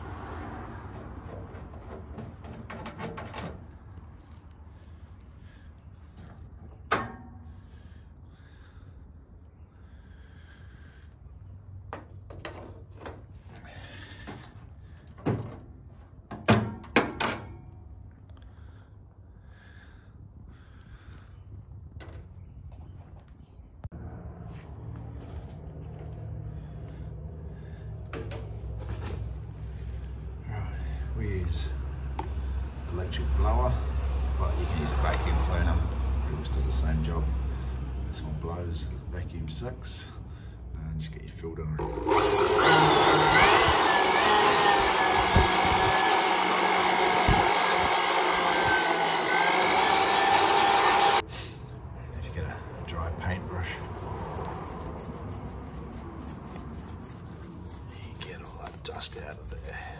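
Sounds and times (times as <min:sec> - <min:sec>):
electric blower motor whine: 0:41.8 - 0:51.2.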